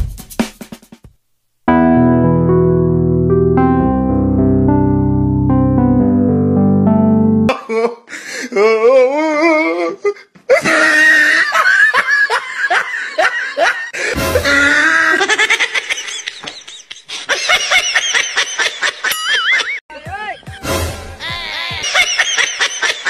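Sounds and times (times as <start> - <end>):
music: 0.0 - 1.1, 1.7 - 7.5, 14.2 - 14.7, 19.9 - 21.9
low bass: 1.7 - 7.5
laughter: 10.5 - 20.7, 21.6 - 23.0.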